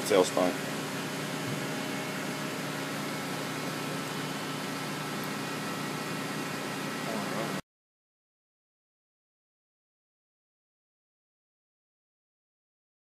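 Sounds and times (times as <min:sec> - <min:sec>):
lathe running: 0:00.0 - 0:07.6.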